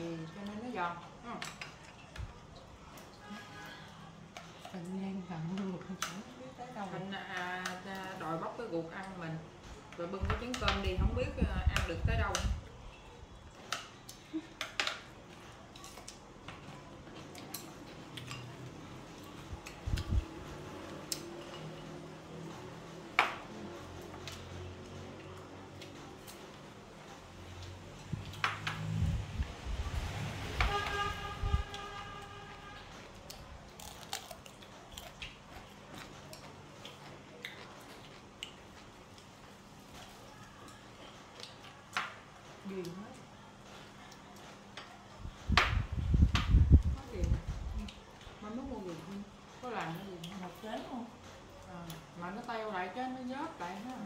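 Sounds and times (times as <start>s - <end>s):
soft chewing: 0.1s - 10.5s, 12.2s - 28.9s, 31.7s - 45.6s.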